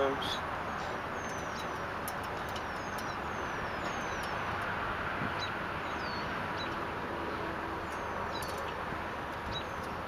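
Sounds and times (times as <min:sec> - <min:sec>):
birds whistling: 0:00.2 - 0:04.6, 0:05.2 - 0:08.8, 0:09.4 - 0:10.0.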